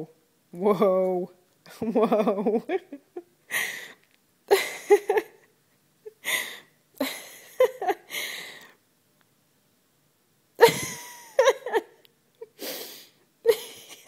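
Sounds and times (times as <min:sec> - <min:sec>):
woman's stifled laughter: 0:01.9 - 0:03.7, 0:04.5 - 0:08.3, 0:10.6 - 0:12.6, 0:13.4 - 0:14.0.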